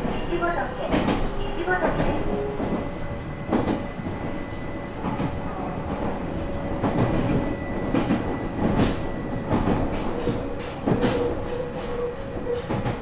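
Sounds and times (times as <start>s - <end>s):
train rumble from inside: 0.0s - 13.0s
wheels clacking over rail joints: 0.0s - 13.0s.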